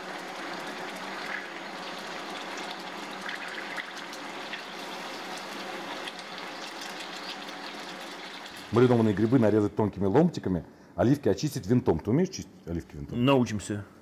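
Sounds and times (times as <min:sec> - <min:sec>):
sausages sizzling in frying pan: 0:00.0 - 0:09.5.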